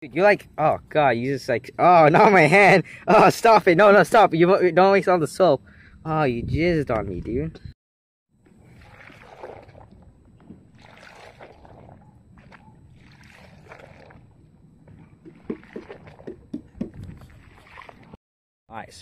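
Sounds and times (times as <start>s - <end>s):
small splashes: 8.5s - 18.2s
soapy water sloshing in a tub: 8.5s - 18.2s.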